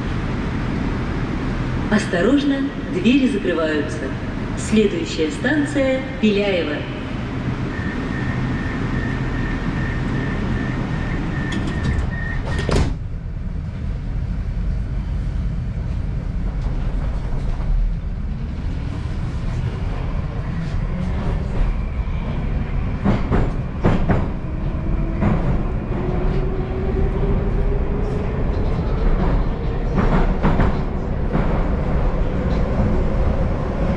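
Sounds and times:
train rumble: 0:00.0 - 0:33.9
rail-joint clacks: 0:11.3 - 0:13.0, 0:23.0 - 0:24.4, 0:28.5 - 0:31.7
train doors banging shut: 0:11.3 - 0:13.1.

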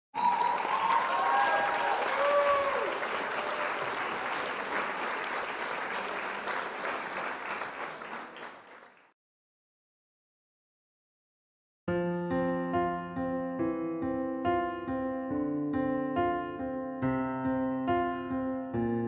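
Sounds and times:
crowd applauding: 0:00.1 - 0:09.2
whoops: 0:00.2 - 0:04.1.

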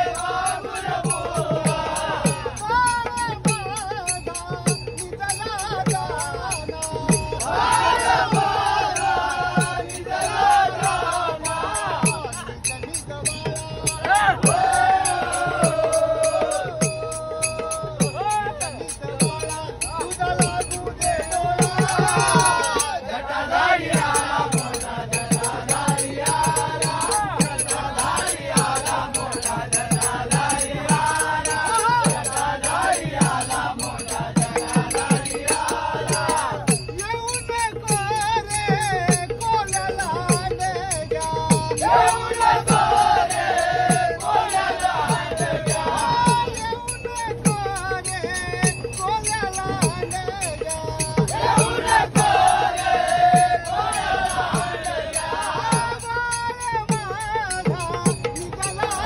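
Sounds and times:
hand cymbals beat: 0:00.0 - 0:59.0
men singing devotional song: 0:00.0 - 0:59.0.

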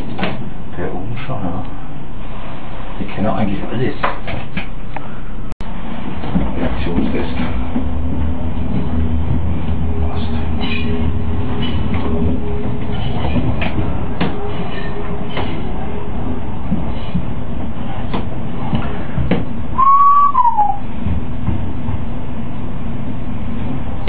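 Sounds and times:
train rumbling: 0:00.0 - 0:24.0
tone sliding down in pitch: 0:19.8 - 0:20.8.

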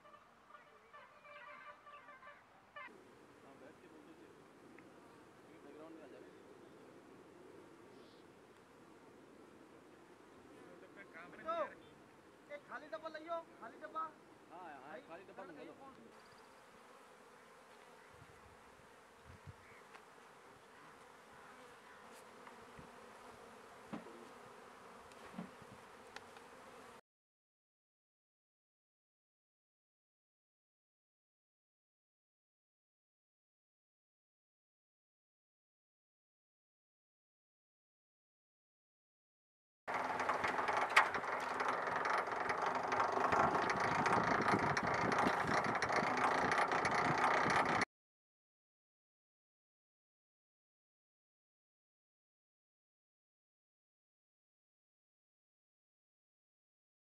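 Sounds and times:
honeybees buzzing: 0:16.2 - 0:27.0, 0:39.9 - 0:47.8
honey extractor rattling clatter: 0:39.9 - 0:47.8.

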